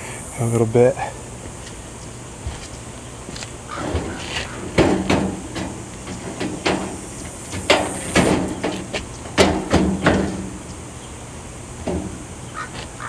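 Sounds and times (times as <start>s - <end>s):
metal lid knocking and clanking: 3.8s - 10.6s.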